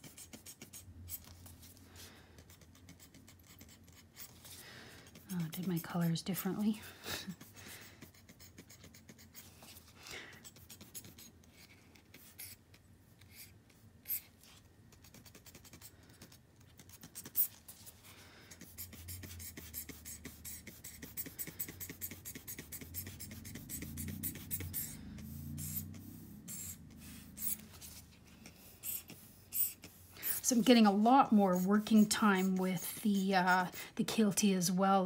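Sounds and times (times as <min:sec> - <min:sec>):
low rumble: 0:22.7 - 0:28.4.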